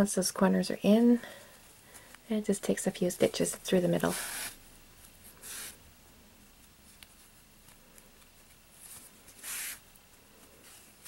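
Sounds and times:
yarn rustling through stitches: 0:01.6 - 0:05.8, 0:06.5 - 0:11.0.

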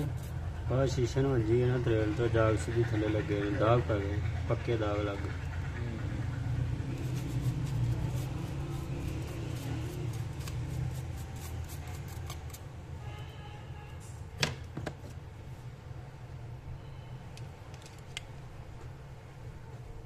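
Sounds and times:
idling engine hum: 0:00.4 - 0:11.2.

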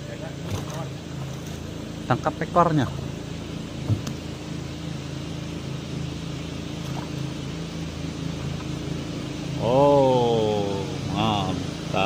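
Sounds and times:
boat engine idling: 0:00.0 - 0:12.0
man exclaiming: 0:09.6 - 0:12.0.

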